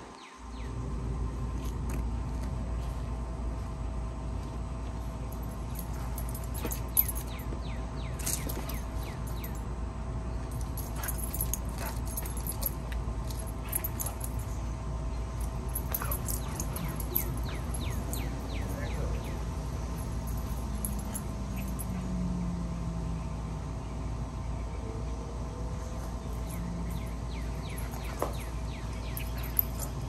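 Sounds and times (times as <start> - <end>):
low outdoor rumble: 0.0 - 30.0
dog collar jingling: 5.2 - 9.7, 10.4 - 22.2, 26.3 - 30.0.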